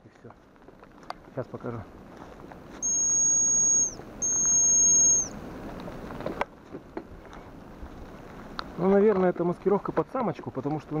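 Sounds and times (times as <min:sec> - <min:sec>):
high whistle lure: 0:02.8 - 0:05.4.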